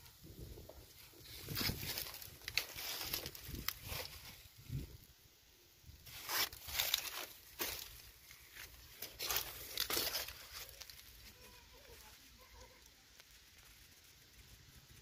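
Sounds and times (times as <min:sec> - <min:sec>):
footsteps crunching on dry leaves: 0:01.0 - 0:04.8, 0:06.0 - 0:12.1.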